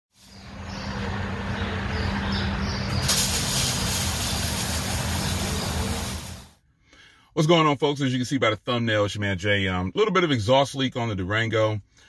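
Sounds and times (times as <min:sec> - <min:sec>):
loud rushing noise: 0:00.2 - 0:06.6
vehicle engine humming: 0:00.2 - 0:06.6.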